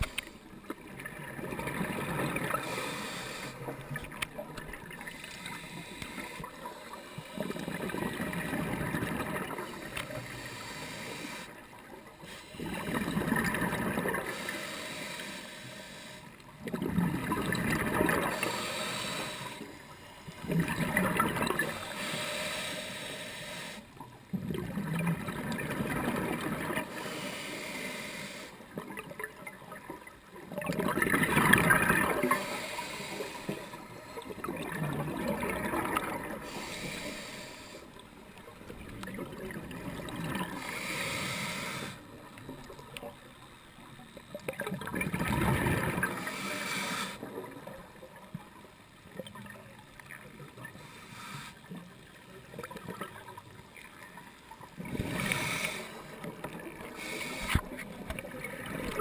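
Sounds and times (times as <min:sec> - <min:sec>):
exhaled bubbles gurgling: 0:00.0 - 0:14.6, 0:16.5 - 0:23.0, 0:24.0 - 0:27.3, 0:28.6 - 0:50.8, 0:51.6 - 0:59.0
scuba diver breathing underwater: 0:01.2 - 0:29.1, 0:30.8 - 0:38.3, 0:39.0 - 0:42.5, 0:45.5 - 0:47.6, 0:50.6 - 0:51.9, 0:54.8 - 0:59.0.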